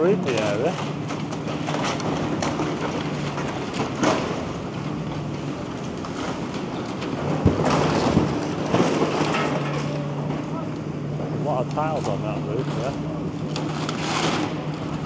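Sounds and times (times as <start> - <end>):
falling debris clattering: 0.2 - 10.4.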